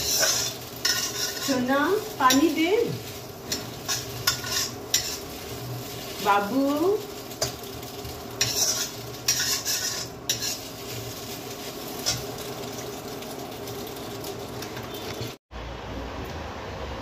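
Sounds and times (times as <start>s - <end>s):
metal spatula scraping a wok: 0.0s - 6.4s, 8.4s - 11.2s
food sizzling: 0.0s - 15.4s.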